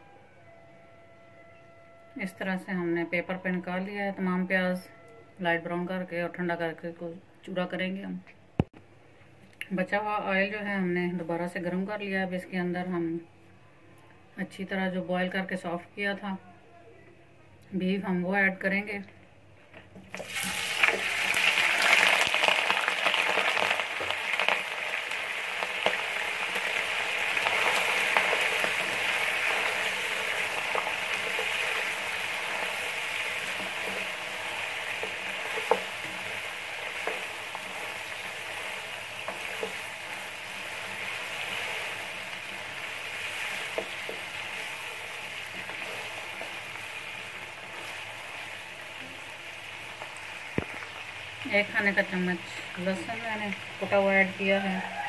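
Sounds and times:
meat sizzling in hot oil: 20.1 - 55.0.

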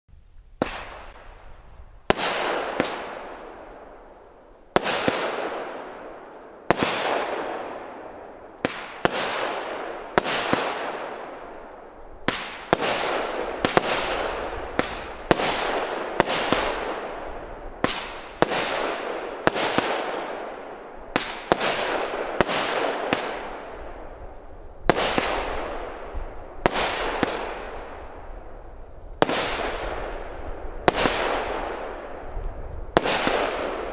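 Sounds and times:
firework shots: 0.6 - 33.9.

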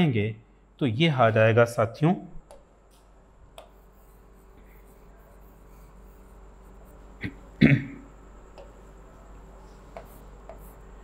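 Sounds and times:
chalk tapping on blackboard: 3.6 - 6.4, 9.9 - 10.8.

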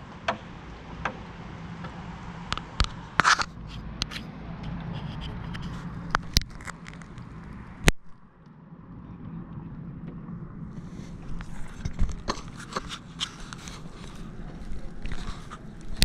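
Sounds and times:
low background rumble: 0.0 - 16.0
sharp clicks and knocks: 0.2 - 10.3
handling scraping and rustling: 2.6 - 8.0, 10.7 - 16.0.

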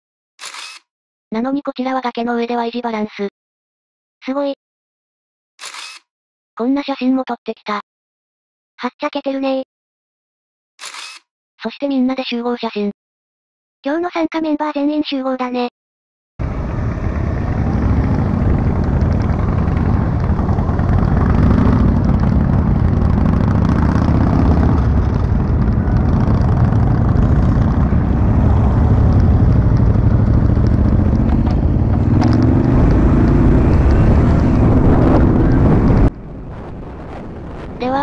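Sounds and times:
motorcycle engines pulling away: 16.4 - 36.1
wind buffeting microphone: 16.4 - 38.0.

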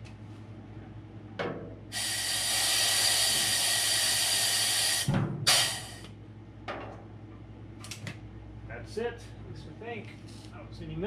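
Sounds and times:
compressed air hissing: 1.9 - 6.1.

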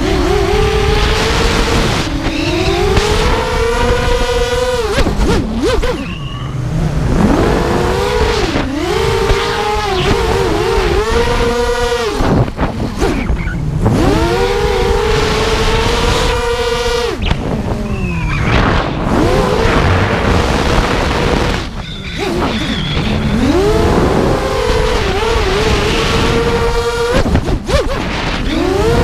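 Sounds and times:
quadcopter motors whining: 0.0 - 29.0
wind rushing: 17.3 - 26.6.

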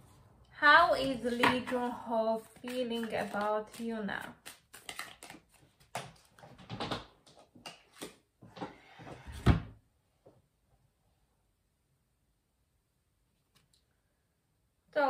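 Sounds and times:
cards shuffling: 2.4 - 6.5, 7.3 - 8.2.

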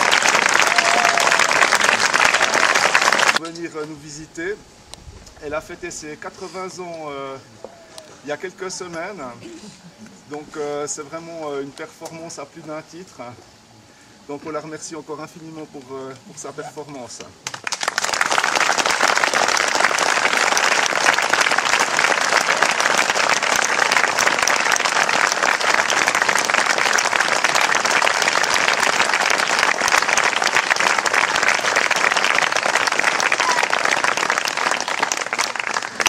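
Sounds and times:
audience applauding: 0.0 - 3.4, 17.4 - 36.0.

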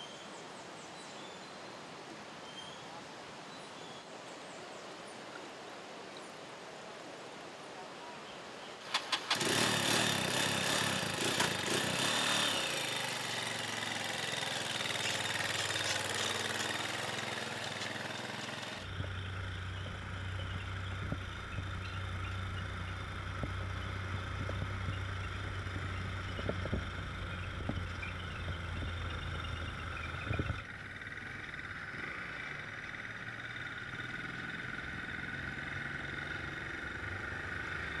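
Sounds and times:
motorcycle engine running: 8.9 - 38.0.

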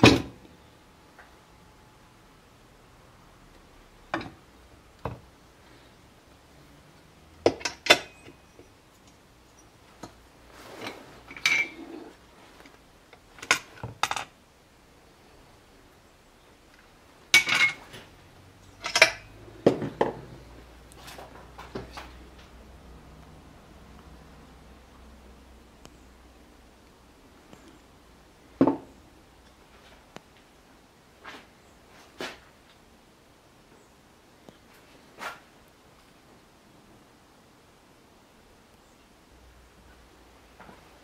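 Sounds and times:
parts clinking on wooden bench: 7.4 - 10.2, 10.8 - 12.1, 13.2 - 14.4, 17.3 - 18.0, 18.8 - 20.3.

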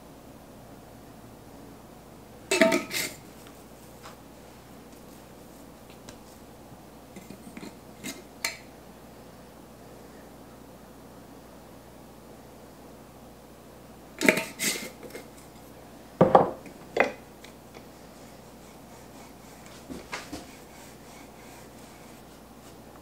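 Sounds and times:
dishes and utensils clattering: 2.5 - 3.2, 14.2 - 17.2.

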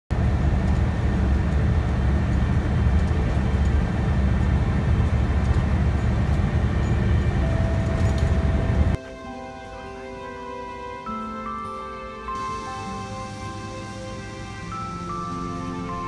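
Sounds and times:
bus engine and tyres rumbling: 0.1 - 9.0.

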